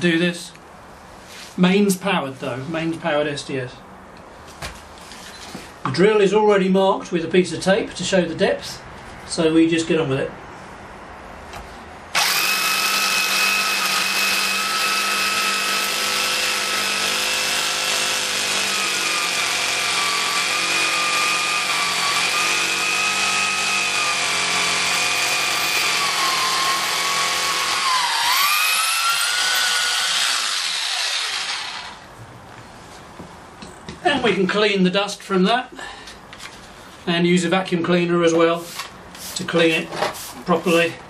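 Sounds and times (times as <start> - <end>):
hammer drill boring into concrete: 12.2 - 32.0.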